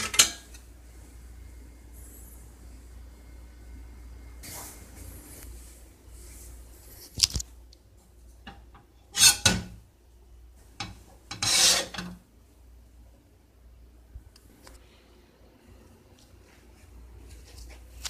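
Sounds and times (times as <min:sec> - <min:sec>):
cookware scraping: 0:00.0 - 0:00.6, 0:08.5 - 0:09.8, 0:10.8 - 0:12.2
metal cookware clank: 0:00.0 - 0:00.6, 0:08.5 - 0:09.8, 0:10.8 - 0:12.2.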